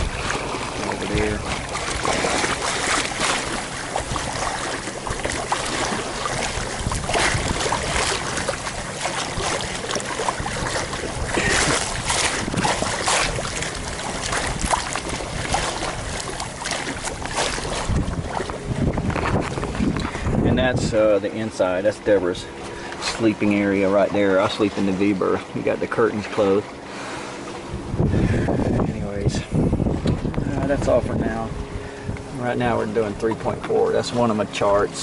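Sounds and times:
wind on microphone: 0.0s - 21.1s, 27.5s - 33.9s
water rushing along boat hull: 0.0s - 35.0s.

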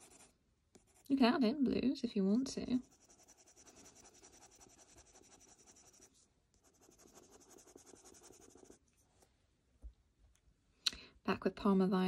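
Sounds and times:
pencil scratching on paper: 0.0s - 1.2s, 2.8s - 8.8s.

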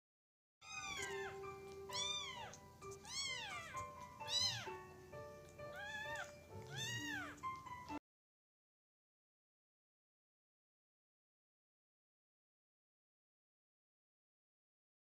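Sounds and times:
kitten mewing: 0.6s - 4.9s, 5.6s - 8.0s
soft background music: 0.6s - 8.0s.

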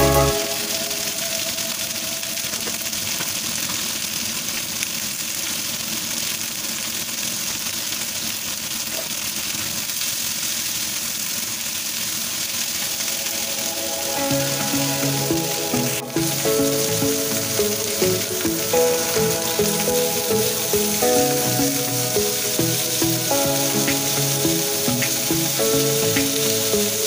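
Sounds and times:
music: 0.0s - 2.4s, 13.0s - 27.0s
skewers sizzling in a grill pan: 9.0s - 27.0s.

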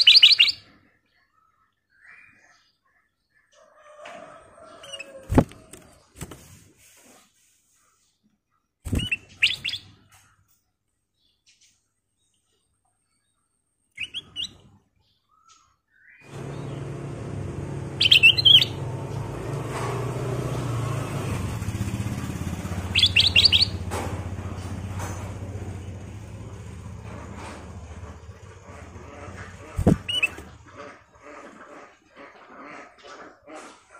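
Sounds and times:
bird chirping: 0.0s - 3.5s, 8.7s - 19.3s, 22.7s - 24.9s, 28.1s - 30.9s
low engine-like rumble: 16.3s - 31.7s
bird calling high notes: 17.9s - 18.8s, 22.9s - 23.8s.

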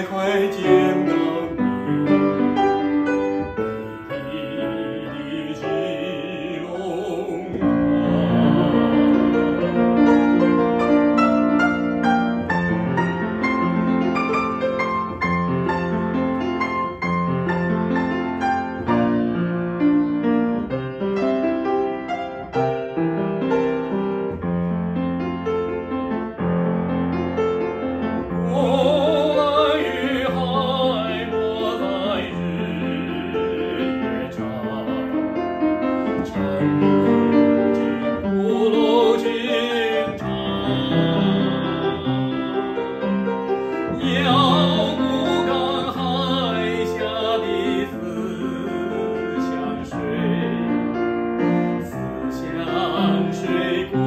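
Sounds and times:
man singing with vibrato: 0.0s - 11.2s, 28.2s - 54.0s
upright piano playing: 0.0s - 54.0s.

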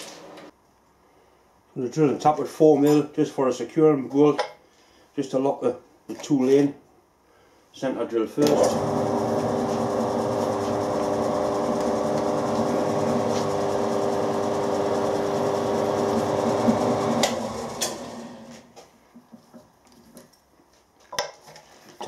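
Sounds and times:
drilling machine motor running: 8.5s - 18.6s
machine spinning down: 8.6s - 18.5s.

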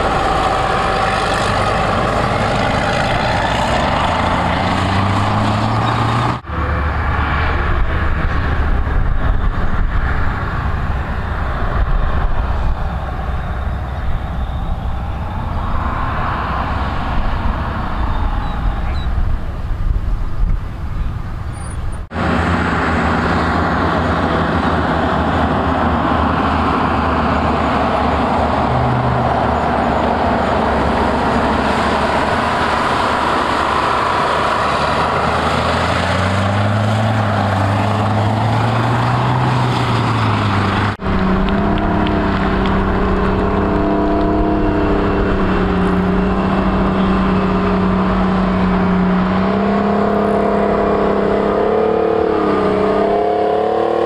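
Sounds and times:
vehicle engines running: 0.0s - 54.0s.

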